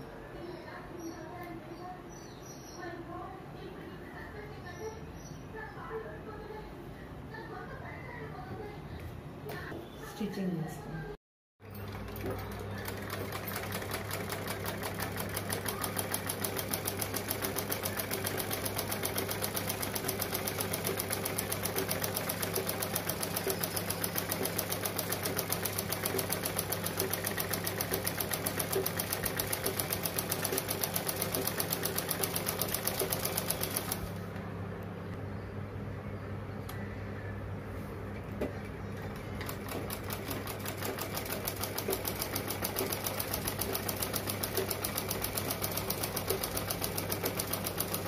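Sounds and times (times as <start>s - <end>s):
sewing machine stitching: 11.6s - 34.2s, 39.0s - 48.0s.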